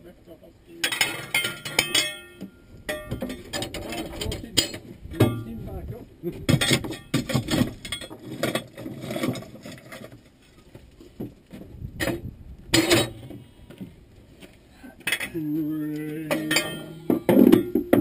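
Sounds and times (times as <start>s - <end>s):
metallic clanks and knocks: 0.8s - 5.6s, 6.5s - 10.2s, 12.0s - 13.5s, 16.3s - 18.0s.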